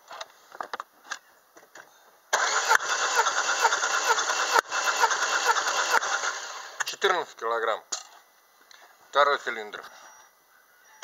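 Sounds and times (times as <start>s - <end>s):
engine cranking on starter motor: 2.3s - 6.9s.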